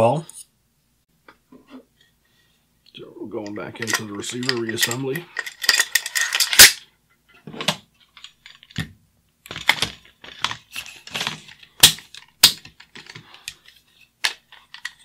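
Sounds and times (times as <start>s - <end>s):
rifle parts clicking and clacking: 3.4s - 6.8s, 7.6s - 8.9s, 9.5s - 15.0s.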